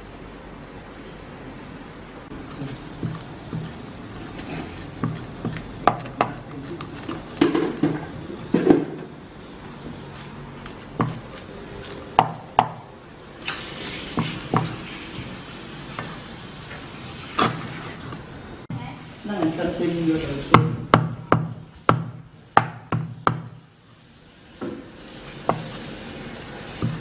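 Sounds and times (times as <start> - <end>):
cleaver chopping on wooden block: 4.4 - 8.0, 10.9 - 11.4, 14.2 - 14.8.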